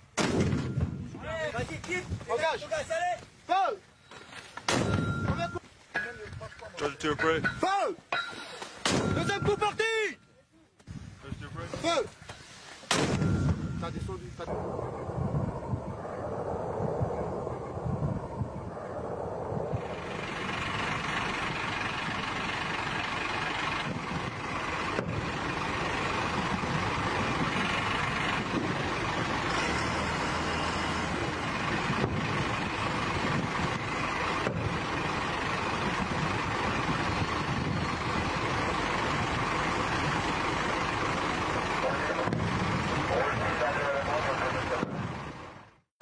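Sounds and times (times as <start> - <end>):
heavy vehicle engine running: 13.2 - 45.9.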